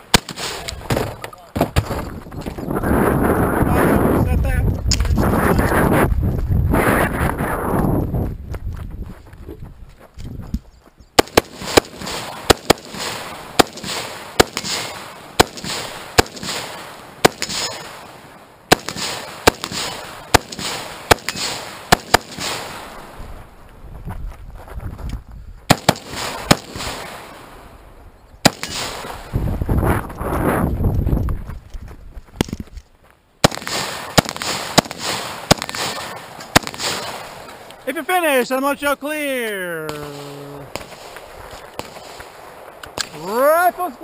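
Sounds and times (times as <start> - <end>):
rifle shots with echo: 0.0 - 1.1, 11.2 - 23.2, 25.7 - 27.7, 28.4 - 29.4, 33.4 - 37.7, 39.9 - 43.5.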